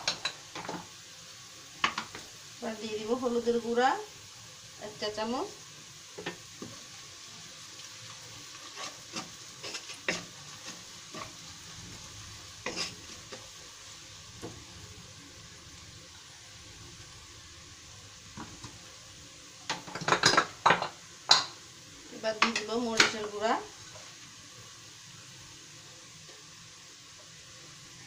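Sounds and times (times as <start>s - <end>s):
utensils clattering against pan: 0.0s - 0.8s, 19.7s - 21.6s
onions sizzling in oil: 0.0s - 28.0s
wooden spatula scraping wok: 7.8s - 15.0s.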